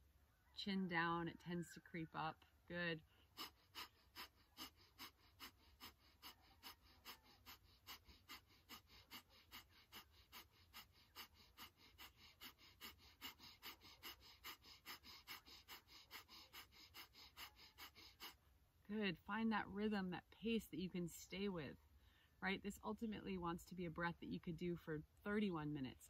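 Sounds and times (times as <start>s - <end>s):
rapid forceful nose breathing: 3.1s - 18.5s.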